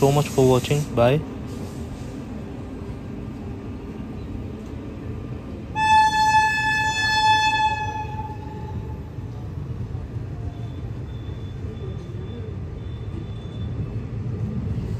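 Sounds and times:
train rumbling: 0.0 - 14.9
high train horn: 5.7 - 9.2.

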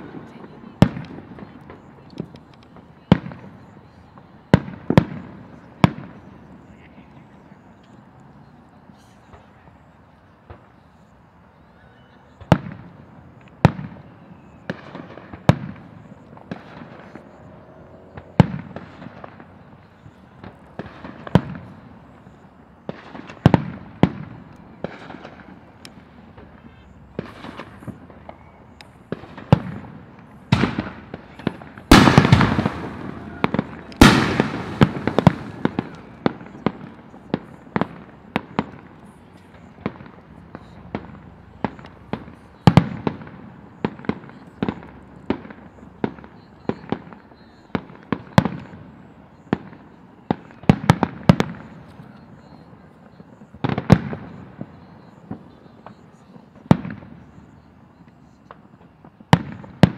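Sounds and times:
fireworks bursting with sharp bangs: 0.0 - 59.9.

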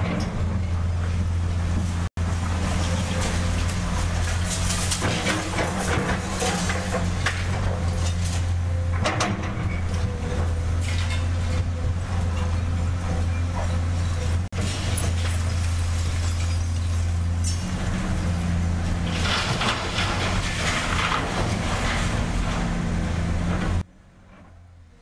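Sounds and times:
heavy diesel machine running: 0.0 - 25.0
clanks and knocks: 4.5 - 9.8.

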